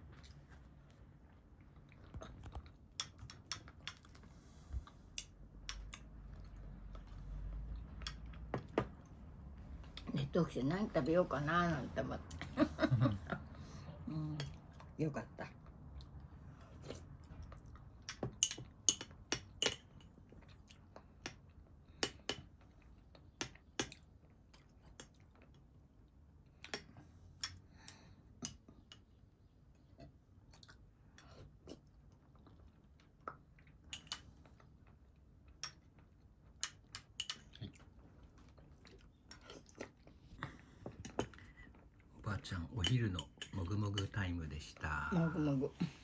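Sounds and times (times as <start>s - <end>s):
chewing: 37.2s - 42.2s.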